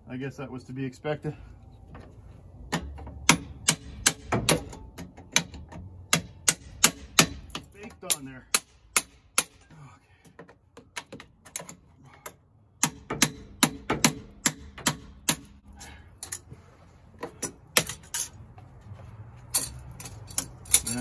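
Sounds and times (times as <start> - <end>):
hand tools striking metal: 2.7 - 9.7, 10.4 - 16.5, 17.2 - 18.4, 19.5 - 21.0.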